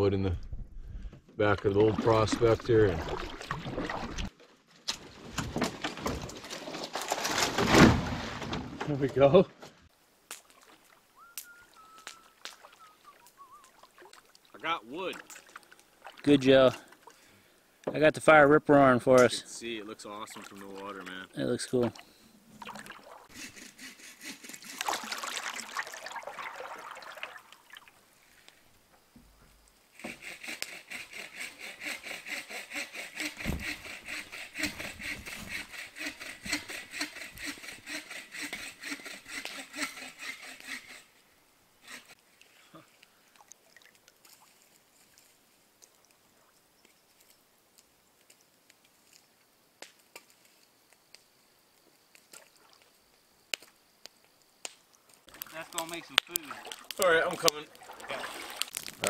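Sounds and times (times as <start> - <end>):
paddle splashing in water: 1.6 - 4.4, 12.1 - 17.2, 20.1 - 21.2, 21.8 - 23.4, 24.4 - 28.5, 55.4 - 59.0
campfire crackling: 9.9 - 30.8, 41.7 - 59.0.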